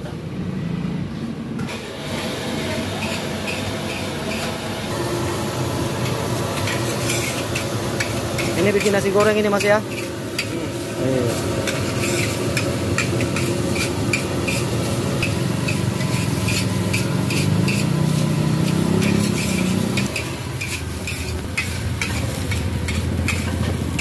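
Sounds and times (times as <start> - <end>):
food sizzling: 2.0 - 24.0
metal spatula scraping a wok: 6.4 - 24.0.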